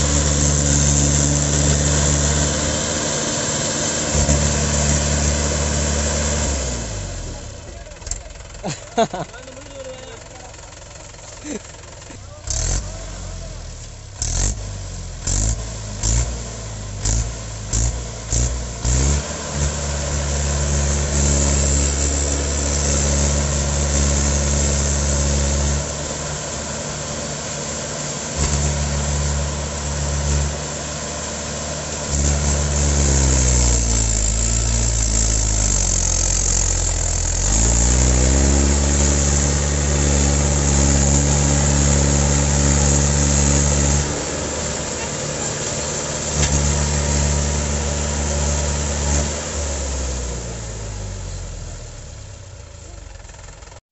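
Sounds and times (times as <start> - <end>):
tractor diesel engine under load: 0.0 - 53.9.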